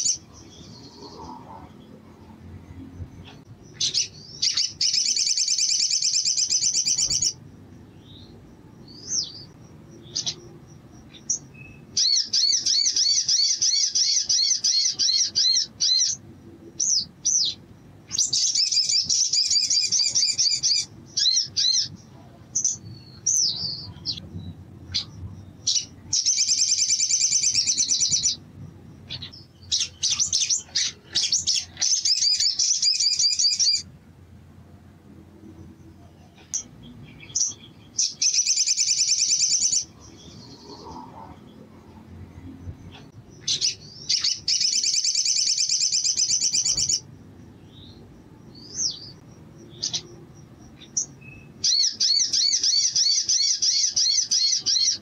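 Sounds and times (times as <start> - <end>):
bird chirps: 0.0 - 33.9, 35.6 - 55.0
bird trilling: 3.3 - 7.4, 8.9 - 16.2, 16.8 - 22.0, 24.9 - 28.4, 29.0 - 33.9, 36.4 - 41.4, 42.9 - 47.1, 48.6 - 55.0.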